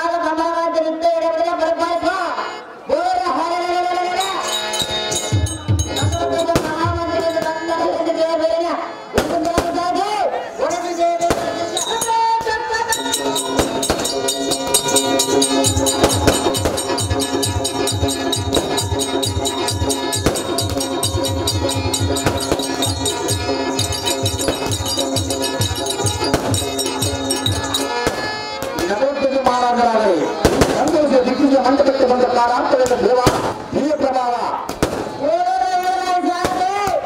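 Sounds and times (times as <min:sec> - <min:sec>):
held chord: 0:04.1 - 0:08.0, 0:11.2 - 0:32.3
rapid high percussion clicks: 0:04.3 - 0:07.6, 0:11.3 - 0:28.9
deep even drum beats: 0:04.5 - 0:07.5, 0:12.9 - 0:28.9
fast drumming: 0:12.9 - 0:28.1.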